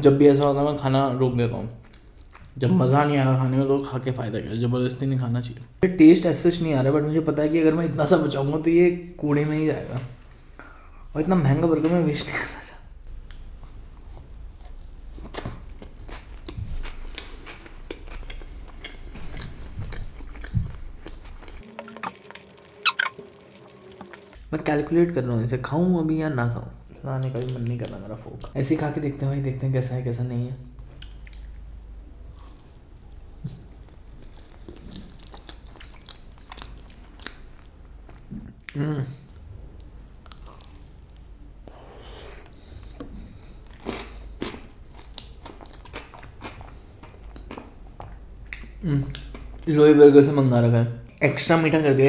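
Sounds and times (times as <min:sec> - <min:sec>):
close chewing with mouth clicks: 0:01.8 - 0:02.6, 0:13.0 - 0:24.4, 0:31.0 - 0:31.6, 0:32.3 - 0:41.3, 0:42.5 - 0:49.7
mouth clicks and smacks: 0:22.8 - 0:23.2, 0:30.9 - 0:31.6, 0:43.8 - 0:49.7.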